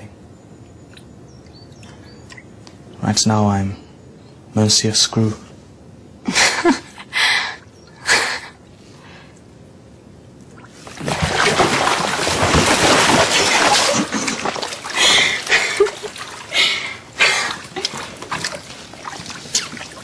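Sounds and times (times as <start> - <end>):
bathwater splashing and sloshing: 10.5 - 20.0
short water splashes: 10.6 - 20.0.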